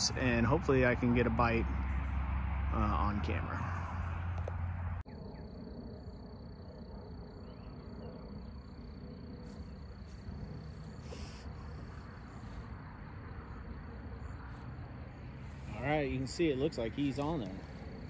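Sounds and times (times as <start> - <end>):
low rumble: 0.0 - 18.0
insect trilling: 5.1 - 18.0.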